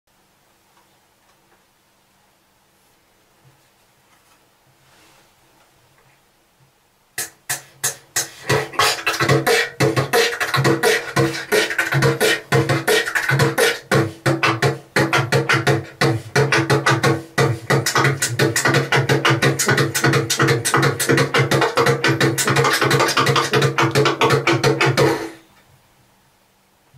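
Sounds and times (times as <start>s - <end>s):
beatboxing: 7.2s - 25.5s.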